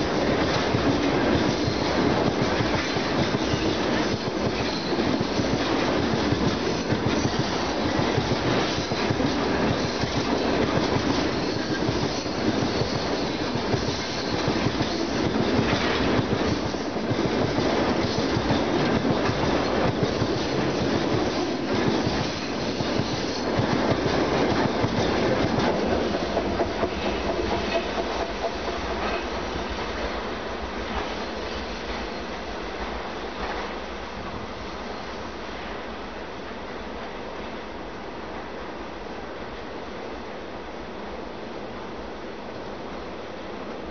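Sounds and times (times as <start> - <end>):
freight train rolling past: 0.0 - 43.9
wheels clattering over rail joints: 13.6 - 29.4.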